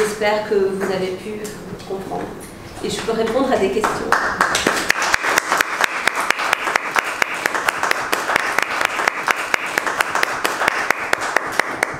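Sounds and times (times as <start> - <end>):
audience applauding: 4.1 - 11.9.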